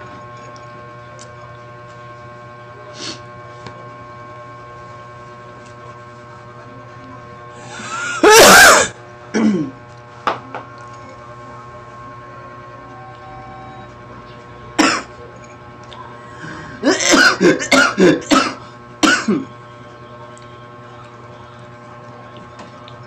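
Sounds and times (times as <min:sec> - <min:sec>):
person sneezing loudly: 0:08.1 - 0:09.7, 0:16.8 - 0:19.5.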